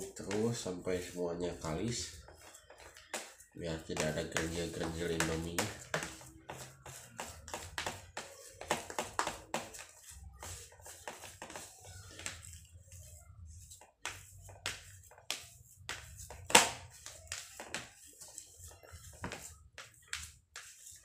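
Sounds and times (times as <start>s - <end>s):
hands squishing wet dough: 0.0s - 21.0s.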